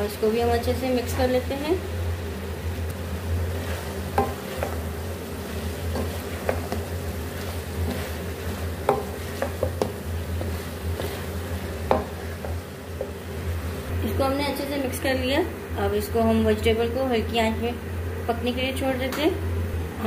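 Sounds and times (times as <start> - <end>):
food stir-frying in a pan: 0.0 - 16.1
wooden spoon scraping a pan: 2.4 - 13.9.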